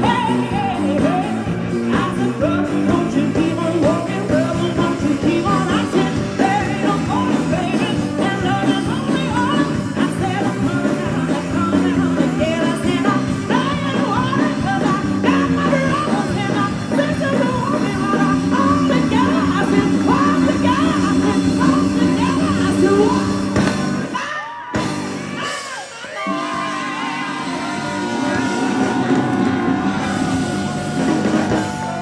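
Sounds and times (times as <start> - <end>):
steady drum beat: 0.0 - 24.2, 24.8 - 32.0
keyboard: 0.0 - 32.0.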